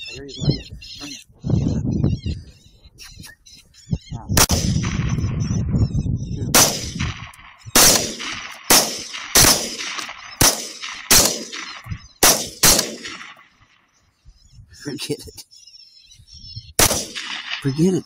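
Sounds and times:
heavy low rumble: 4.2s - 8.3s
rifle shots with echo: 4.4s - 5.5s, 6.5s - 13.9s, 16.8s - 18.0s.

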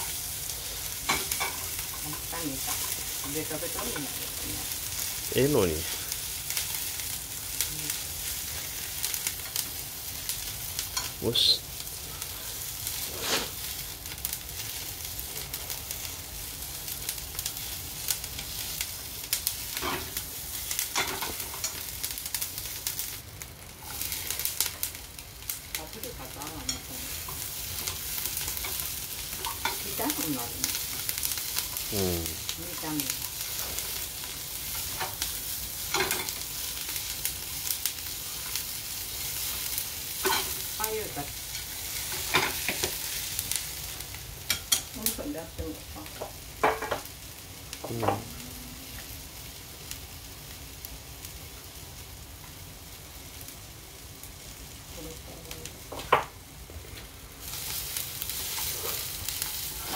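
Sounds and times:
vegetables sizzling in frying pan: 0.0s - 59.9s.

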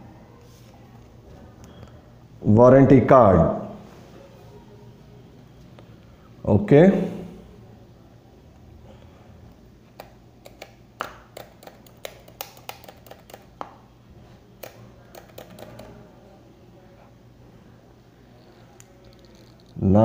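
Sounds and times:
fingers clicking and tapping: 9.9s - 13.8s, 14.6s - 16.0s.

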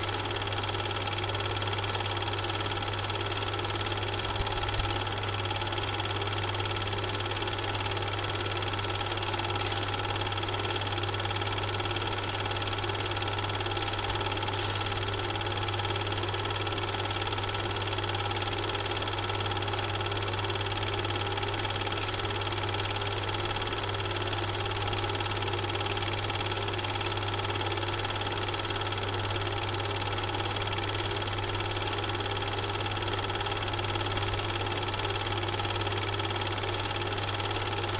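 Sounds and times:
motor hum and whirr: 0.0s - 37.9s.

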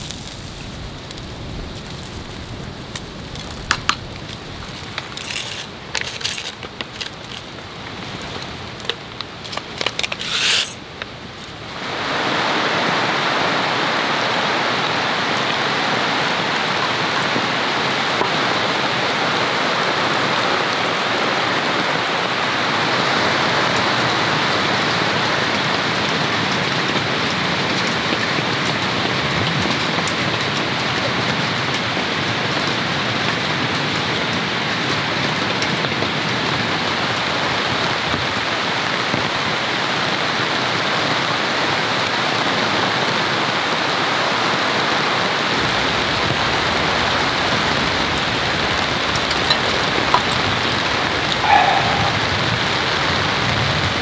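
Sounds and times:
rain falling: 0.0s - 54.0s
metal tongs clinking: 9.8s - 10.8s.

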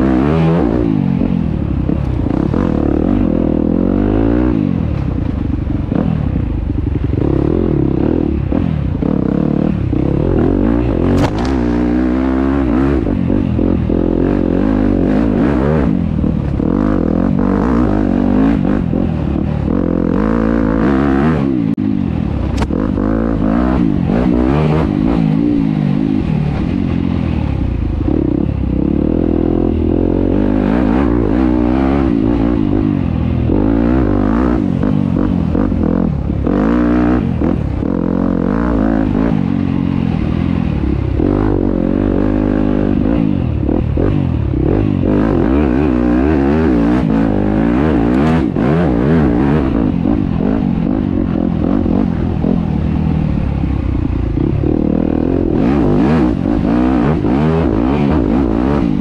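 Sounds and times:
dirt bike engine revving: 0.0s - 59.0s
clatter: 10.0s - 12.2s.

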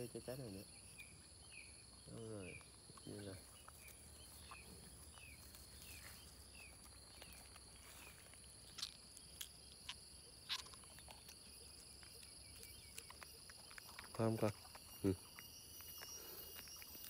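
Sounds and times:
high-pitched insect drone: 11.7s - 17.0s.

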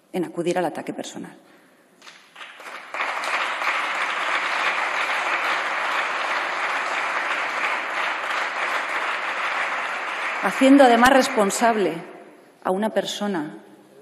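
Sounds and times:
people applauding: 2.0s - 12.1s.

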